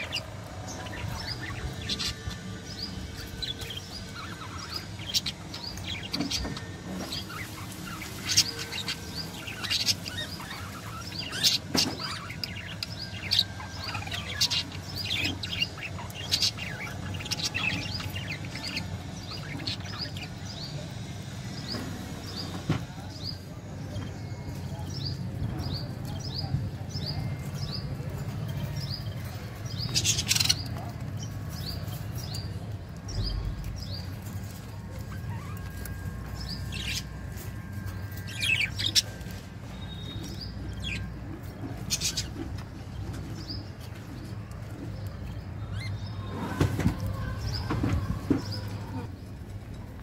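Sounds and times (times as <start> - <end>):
budgerigars chirping: 0.0 - 20.8.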